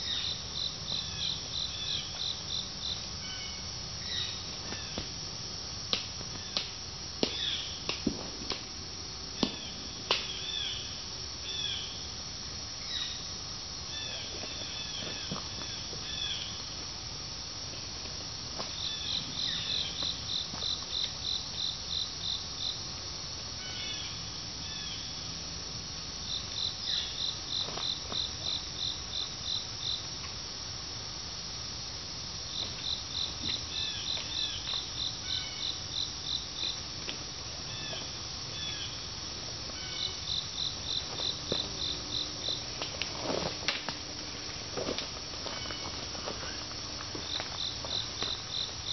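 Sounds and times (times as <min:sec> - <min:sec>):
insects chirping: 0:00.0 - 0:48.9
twigs snapping underfoot: 0:42.7 - 0:47.6.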